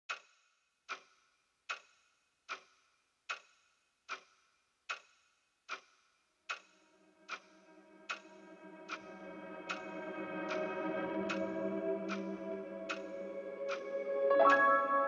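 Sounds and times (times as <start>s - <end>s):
clock-like ticking: 6.5s - 13.9s
low held chord: 7.6s - 15.0s.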